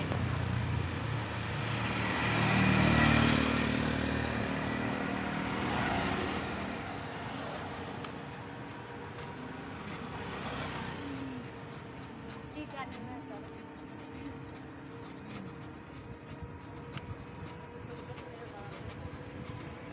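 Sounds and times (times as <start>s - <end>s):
motorbike engine passing by: 0.0s - 14.2s
street and road noise: 0.0s - 19.9s.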